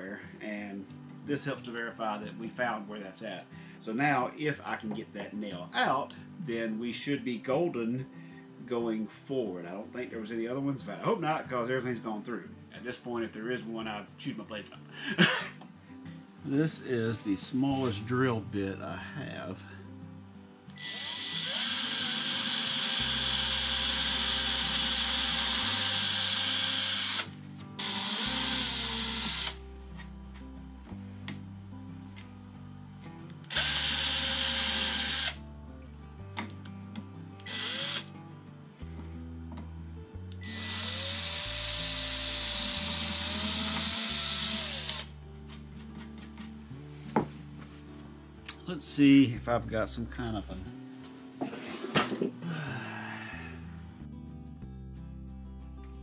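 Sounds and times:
cordless drill boring into wood: 20.7 - 29.6, 33.5 - 35.4, 37.4 - 38.1, 40.4 - 45.1.

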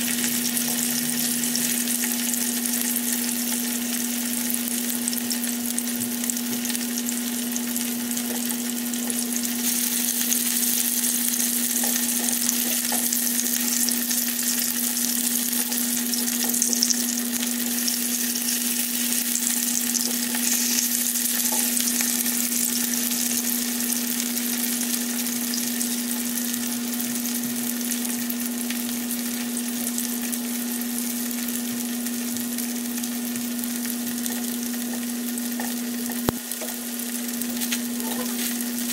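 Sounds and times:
sausage sizzling in hot oil: 0.0 - 38.9.

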